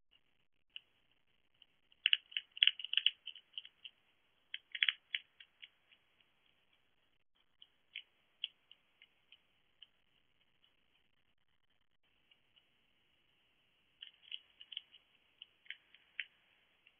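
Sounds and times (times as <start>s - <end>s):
hedgehog chewing clicks: 1.6s - 11.0s, 14.0s - 16.9s.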